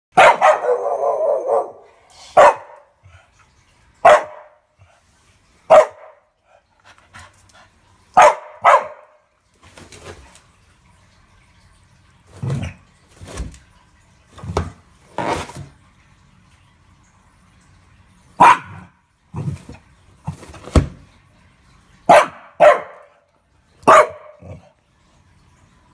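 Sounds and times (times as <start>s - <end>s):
dog barking: 0.1s - 2.9s, 4.0s - 4.6s, 5.7s - 6.2s, 8.2s - 9.2s, 18.4s - 18.9s, 22.1s - 23.2s, 23.8s - 24.6s.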